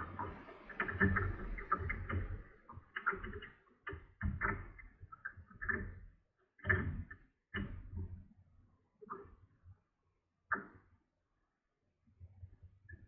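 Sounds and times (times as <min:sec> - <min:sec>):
waves lapping against kayak hull: 0:00.0 - 0:03.4.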